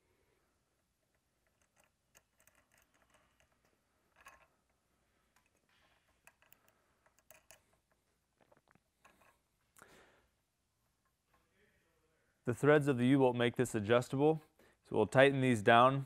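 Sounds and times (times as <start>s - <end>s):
small metallic clicks of nuts: 1.1s - 9.4s.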